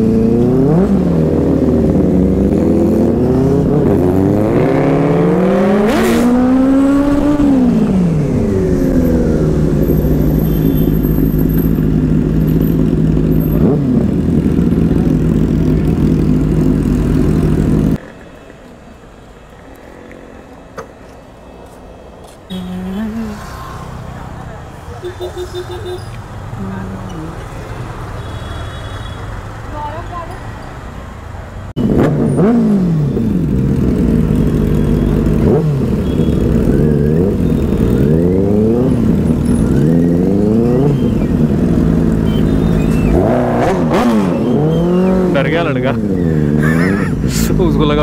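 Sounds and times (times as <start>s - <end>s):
motorcycle engine revving: 0.0s - 18.0s, 31.8s - 48.0s
street background: 0.0s - 48.0s.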